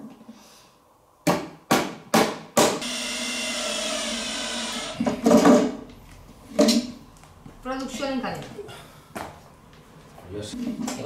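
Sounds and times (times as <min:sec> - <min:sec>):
hammer knocks on wooden panel: 0:01.2 - 0:02.8
cordless drill driving screw: 0:02.8 - 0:05.1.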